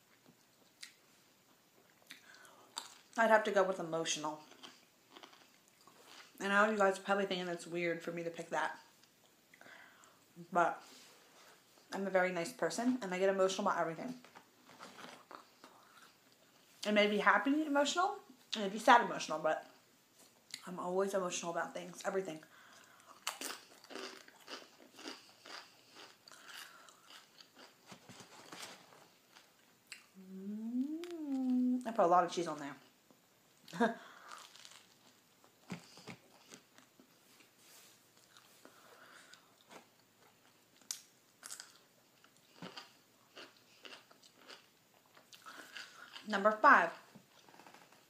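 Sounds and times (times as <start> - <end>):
snack puffs crunching: 4.4 - 6.4, 14.6 - 16.5, 22.8 - 30.1, 34.2 - 37.1, 38.2 - 46.3.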